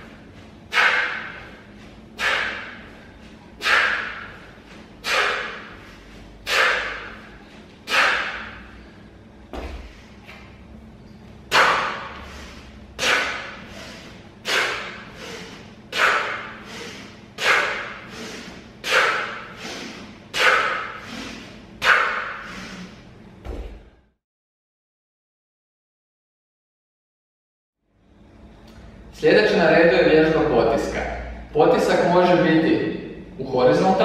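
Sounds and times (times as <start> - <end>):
man exhaling forcefully: 0.0 - 1.6, 2.2 - 9.0, 9.6 - 10.4, 11.5 - 23.1.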